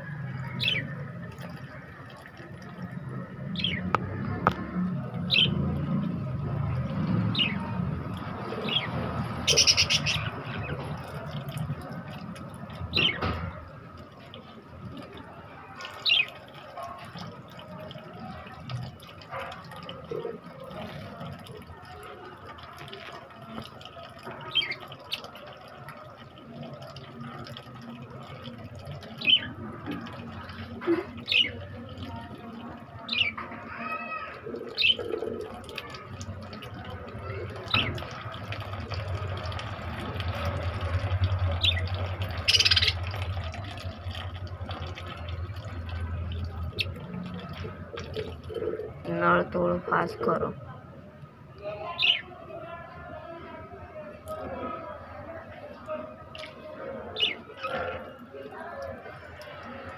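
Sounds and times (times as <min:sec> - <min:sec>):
water trickling from hose: 0:00.2 - 0:50.5, 0:54.2 - 0:59.9
budgies chirping: 0:08.7 - 0:10.7, 0:41.6 - 0:43.0.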